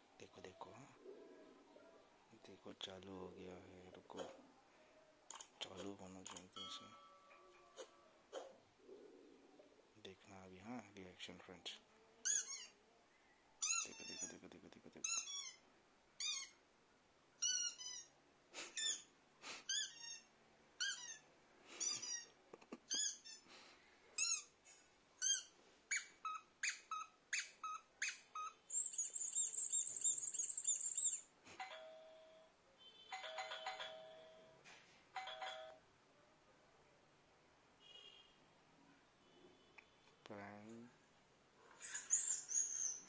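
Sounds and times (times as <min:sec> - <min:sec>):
doorbell chime: 0:06.6 - 0:07.6, 0:31.6 - 0:32.5, 0:33.1 - 0:34.6, 0:35.2 - 0:35.8
high squeaky chirps: 0:12.2 - 0:12.8, 0:13.6 - 0:14.4, 0:15.0 - 0:15.6, 0:16.2 - 0:16.6, 0:17.4 - 0:19.1, 0:19.7 - 0:23.5, 0:24.2 - 0:24.5, 0:25.2 - 0:31.9, 0:41.8 - 0:43.0.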